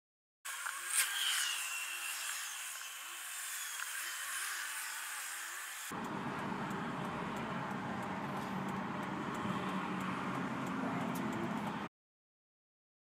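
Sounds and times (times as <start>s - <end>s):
car engine and road rumble: 6.0s - 11.9s.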